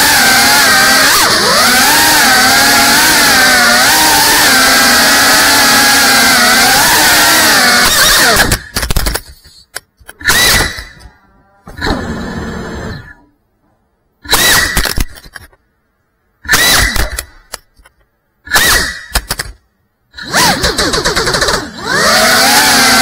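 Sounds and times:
drone motors whining: 0:00.0 - 0:08.8, 0:10.2 - 0:13.4, 0:20.1 - 0:23.0.

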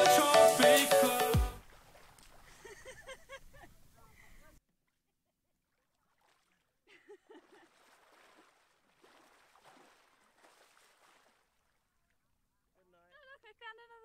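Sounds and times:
song playing: 0:00.0 - 0:01.6
splashing in shallow water: 0:01.5 - 0:03.1, 0:04.9 - 0:12.4.

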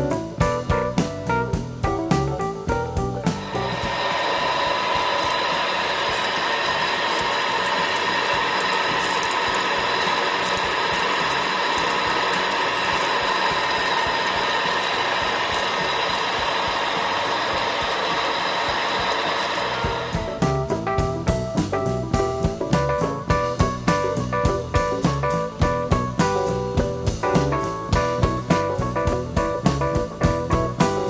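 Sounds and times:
drill boring into metal: 0:03.3 - 0:20.6.

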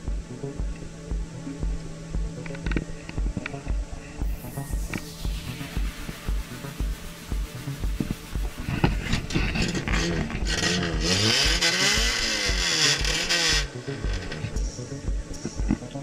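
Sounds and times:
car engine revving: 0:04.3 - 0:15.9.

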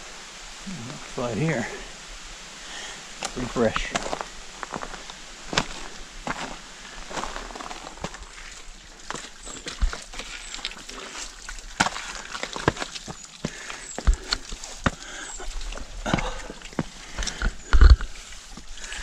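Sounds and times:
boots scraping on wet rock: 0:03.2 - 0:19.0.

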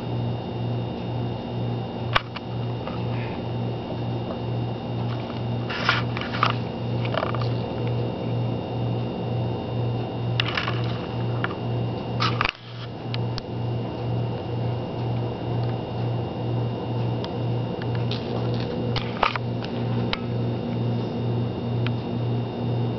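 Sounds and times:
pulsing low machine hum: 0:00.0 - 0:22.9.

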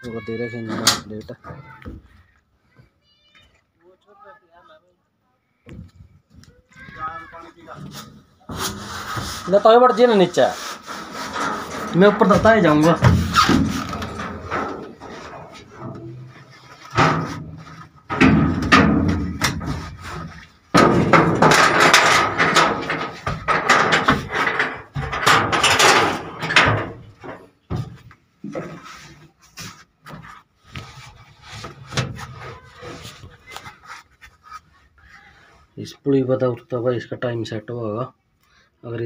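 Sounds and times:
knocks and clunks on metal: 0:11.2 - 0:28.8.

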